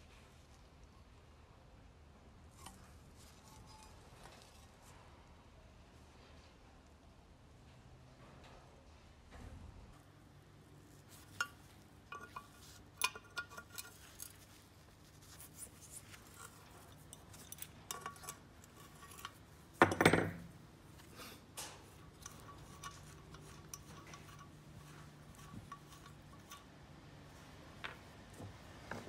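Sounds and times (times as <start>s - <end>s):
metal clatter: 11.0s - 14.7s, 15.3s - 28.1s.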